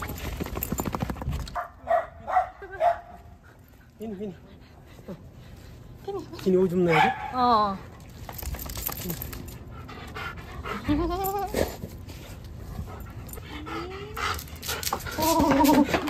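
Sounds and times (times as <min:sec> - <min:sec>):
dog panting: 0:09.4 - 0:16.0.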